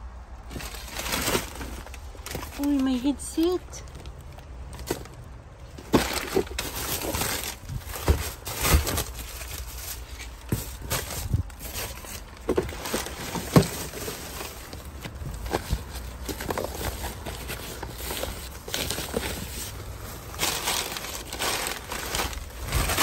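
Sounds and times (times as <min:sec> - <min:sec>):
trash rustling and crinkling: 0:00.1 - 0:23.0.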